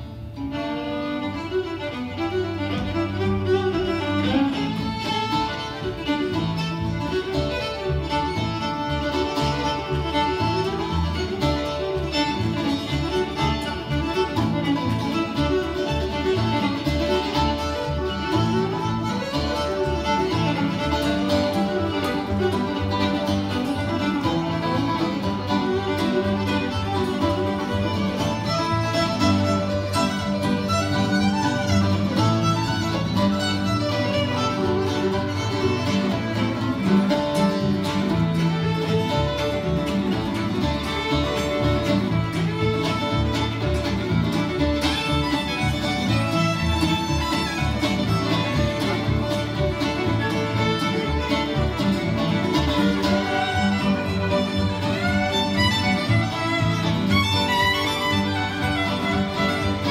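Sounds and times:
cello: 0.0 - 59.9
fiddles bowing: 0.0 - 59.9
strummed acoustic guitars: 0.0 - 59.9.

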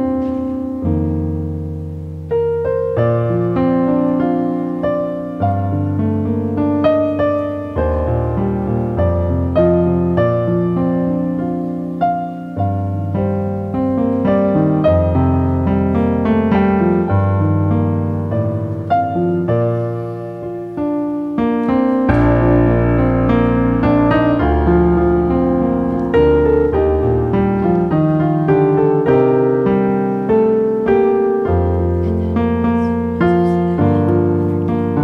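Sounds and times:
calm piano piece: 0.0 - 35.0.

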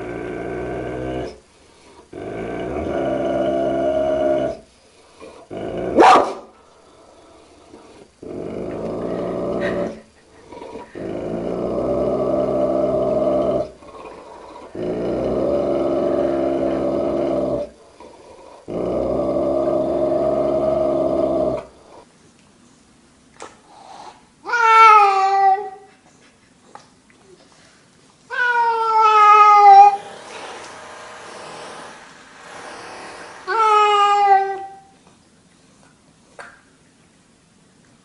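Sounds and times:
dog growling: 0.0 - 22.1
dog barking: 6.0 - 6.5.

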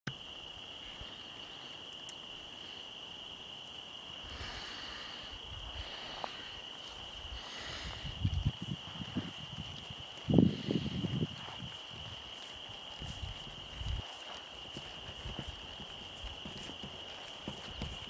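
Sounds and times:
insects chirring: 0.1 - 18.0
hoofbeats on grass: 5.8 - 18.0.

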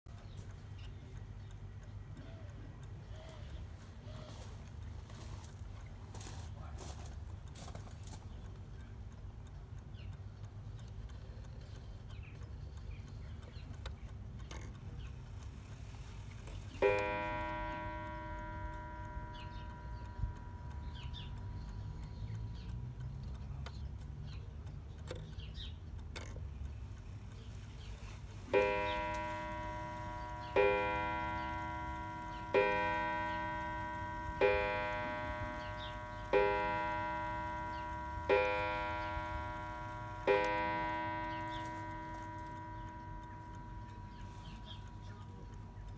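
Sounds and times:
clock ticking: 0.1 - 45.9
clock gong strikes: 16.8 - 21.6, 28.4 - 45.9.

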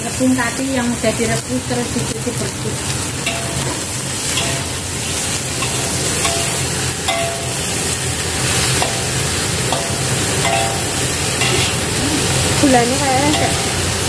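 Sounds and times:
food sizzling in a wok: 0.0 - 14.0
metal spatula scraping a wok: 3.2 - 12.0.

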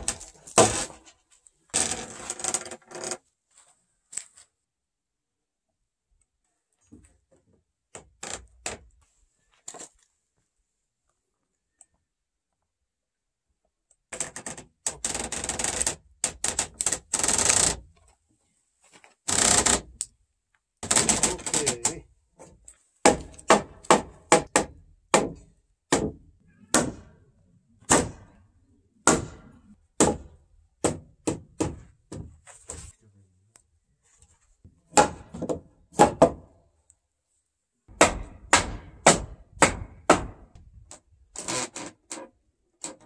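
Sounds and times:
hammer striking wood: 23.0 - 27.1, 27.9 - 28.3, 29.0 - 32.3, 34.9 - 36.5, 37.9 - 40.6.

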